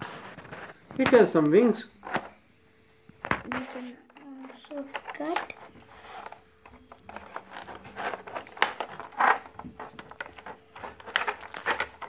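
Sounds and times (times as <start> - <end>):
plastic packaging crackling: 3.4 - 12.0
scissors cutting plastic: 3.5 - 12.0.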